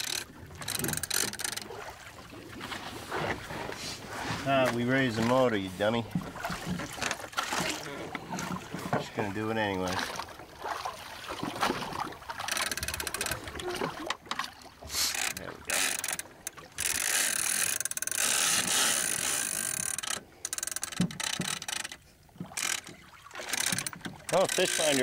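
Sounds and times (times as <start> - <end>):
fishing reel clicking: 0.0 - 1.7, 12.5 - 13.4, 15.1 - 22.0, 22.6 - 25.0.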